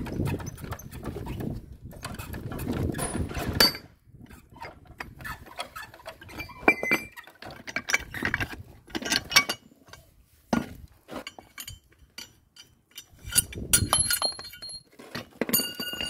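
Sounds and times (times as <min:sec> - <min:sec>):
metal clinks and knocks: 0:01.9 - 0:03.9, 0:10.6 - 0:16.0.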